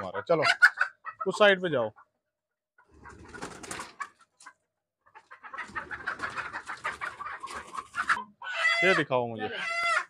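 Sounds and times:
chickens clucking: 0:00.0 - 0:10.0
chickens flapping and scrambling: 0:02.8 - 0:09.0.

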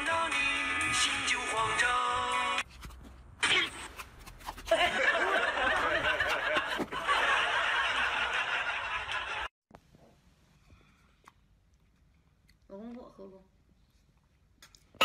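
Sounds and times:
people laughing: 0:04.7 - 0:09.5.

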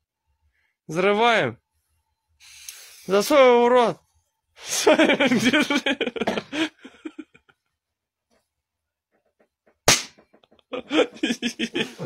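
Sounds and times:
man talking: 0:03.1 - 0:04.0.

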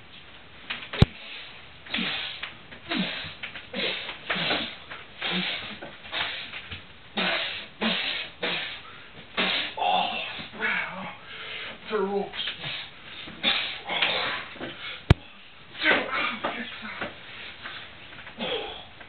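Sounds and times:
man grunting with effort: 0:09.8 - 0:11.2, 0:18.4 - 0:19.0.

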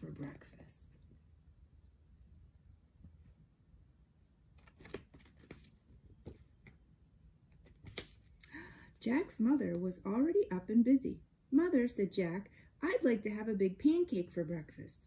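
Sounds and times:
faint background hum: 0:00.0 - 0:15.0
book pages rustling: 0:04.6 - 0:06.9, 0:07.5 - 0:08.4.

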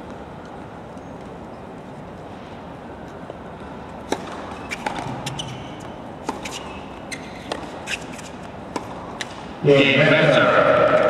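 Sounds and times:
stadium background: 0:00.0 - 0:11.0
tennis balls bouncing: 0:03.2 - 0:11.0
short high squeaks: 0:04.5 - 0:08.4.

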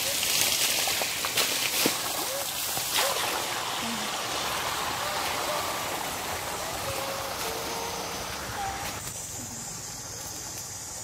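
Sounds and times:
water rushing from hose: 0:00.0 - 0:11.0
high insect buzz: 0:03.0 - 0:11.0.

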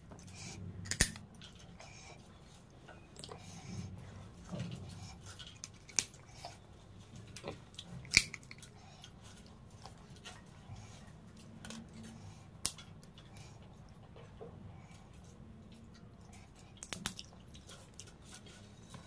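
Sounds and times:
chewing: 0:00.0 - 0:19.0
crab shell cracking: 0:00.9 - 0:01.2, 0:08.1 - 0:08.6, 0:16.8 - 0:17.2.

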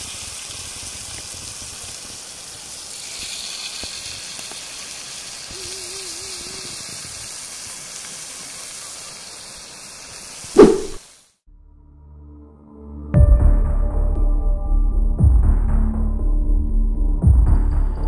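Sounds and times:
steady hissing rushing noise: 0:04.1 - 0:11.3.

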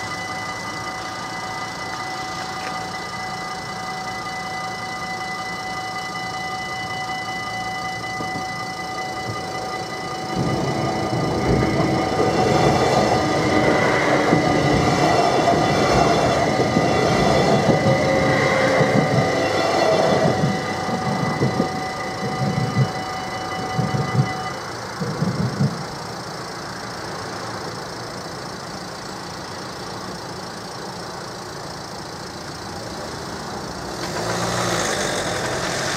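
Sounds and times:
level crossing warning tones: 0:00.0 - 0:27.0
cars idling: 0:00.0 - 0:35.9
train rail and wheel noise: 0:00.0 - 0:35.9.

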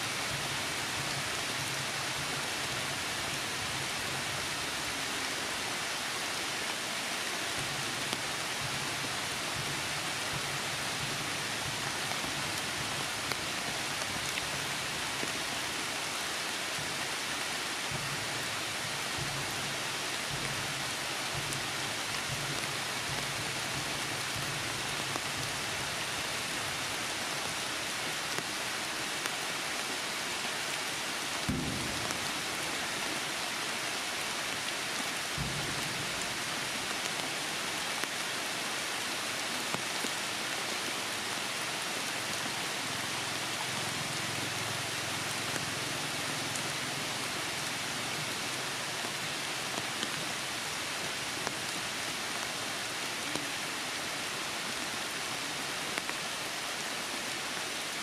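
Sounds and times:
heavy rain: 0:00.0 - 0:58.0
raindrops hitting close by: 0:00.0 - 0:58.0
low thumps: 0:31.5 - 0:33.2.

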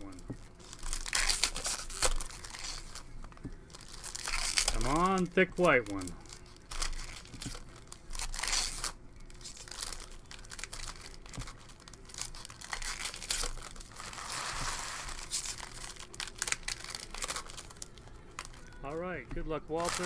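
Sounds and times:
foil wrapper tearing and crinkling: 0:00.0 - 0:18.9, 0:19.5 - 0:20.0.

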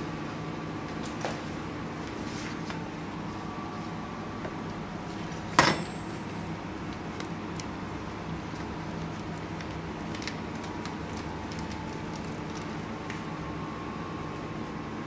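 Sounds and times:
kitchen equipment humming: 0:00.0 - 0:15.0
plastic piping bag rustling: 0:06.8 - 0:13.3.

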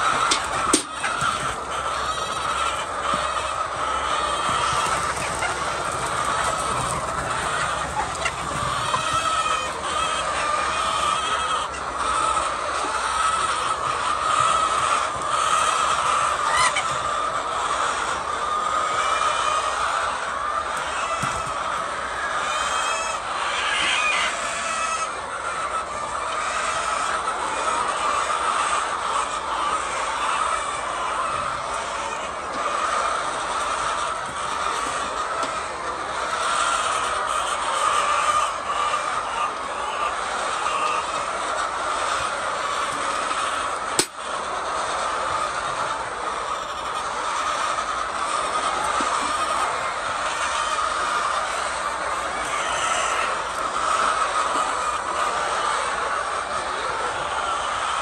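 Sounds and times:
chickens clucking: 0:00.0 - 0:58.0.

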